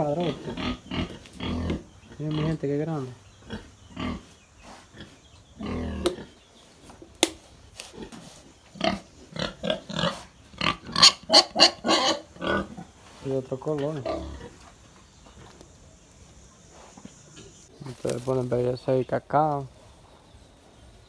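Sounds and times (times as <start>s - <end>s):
pigs grunting: 0.0s - 6.4s, 7.9s - 14.6s.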